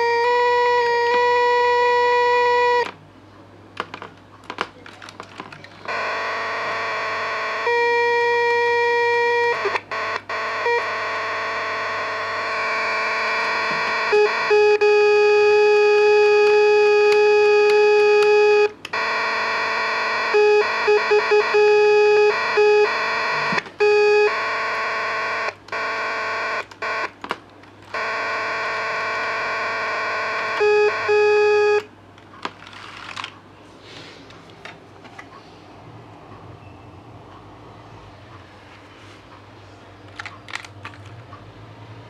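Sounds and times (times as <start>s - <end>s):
buzzy electronic tones: 5.9s - 27.1s, 27.9s - 31.9s.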